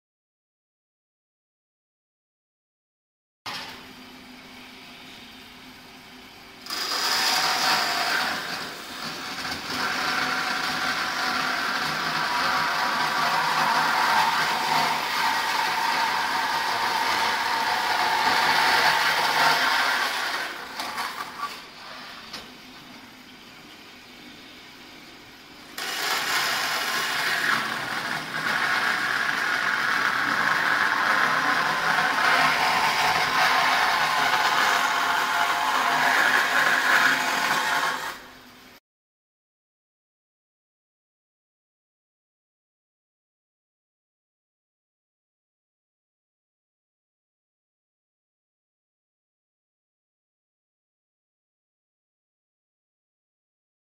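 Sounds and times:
band saw cutting with high whine: 0:06.6 - 0:22.3, 0:25.8 - 0:38.4.

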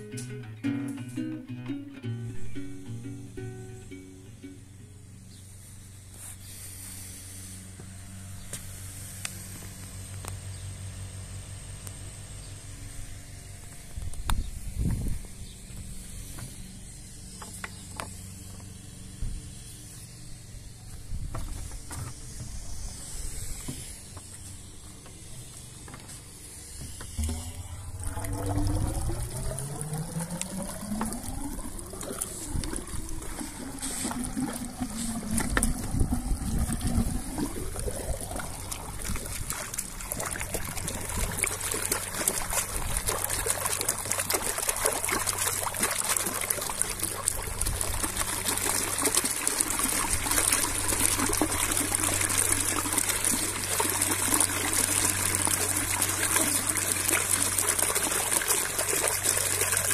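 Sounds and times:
air bubbles gurgling in pipe: 0:27.1 - 0:59.9
water gushing and splashing: 0:27.2 - 0:59.9.

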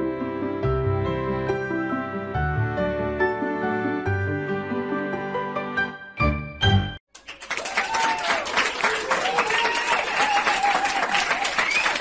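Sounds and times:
applause with cheering: 0:07.1 - 0:12.0.

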